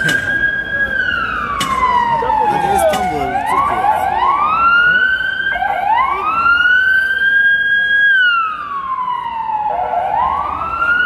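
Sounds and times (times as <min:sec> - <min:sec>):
siren wailing: 0:00.0 - 0:11.0.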